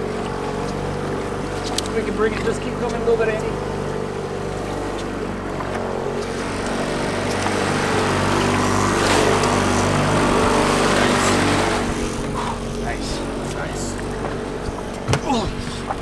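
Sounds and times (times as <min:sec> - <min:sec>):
boat motor running: 0:00.0 - 0:16.0
fish splashing in water: 0:03.8 - 0:12.8.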